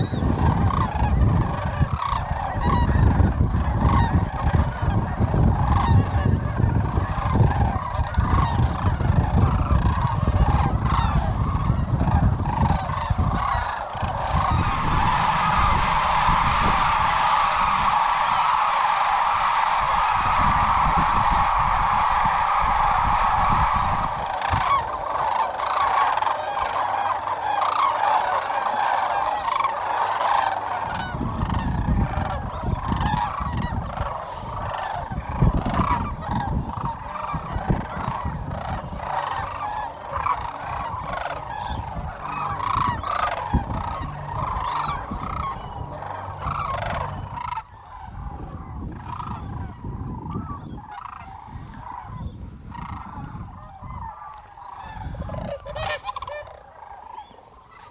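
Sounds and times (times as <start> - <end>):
flock of cranes calling: 0.0 - 57.9
low rumble: 12.0 - 25.5.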